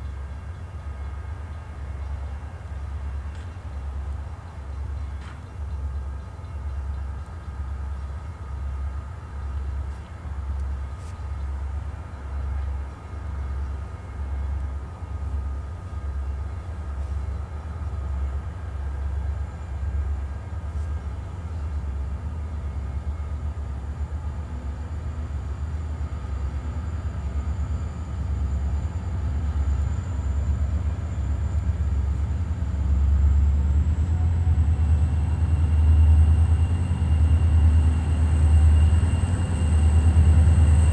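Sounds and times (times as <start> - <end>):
diesel locomotive engine rumble: 0.0 - 40.9.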